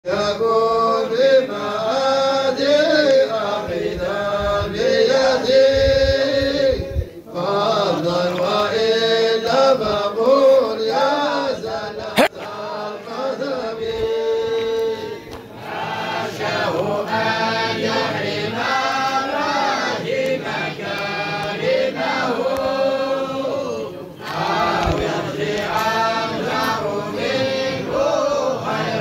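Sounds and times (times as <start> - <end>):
chanted singing: 0.1 - 29.0.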